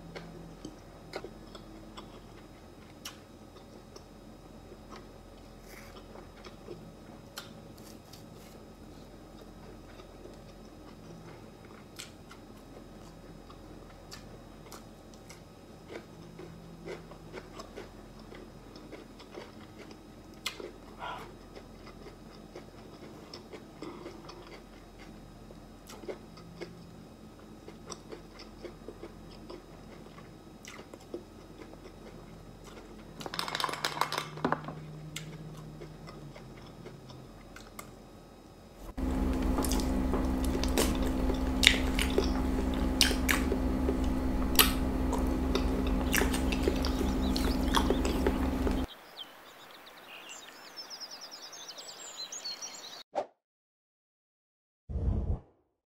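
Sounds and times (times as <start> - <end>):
steady hum with sharp clicks: 0.0 - 48.9
close chewing with mouth clicks: 0.1 - 25.2, 25.8 - 38.0, 39.4 - 48.9
noisy burst: 38.8 - 48.9.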